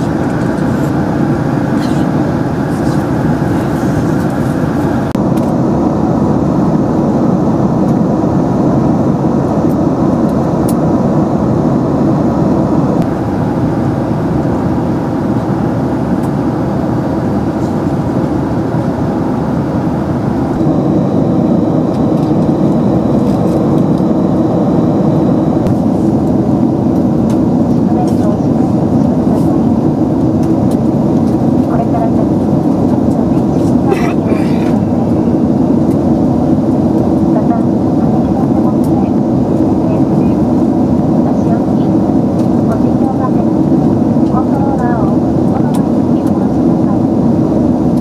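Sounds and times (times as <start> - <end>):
faint high whine: 0.0 - 29.1
airliner cabin noise: 0.0 - 48.0.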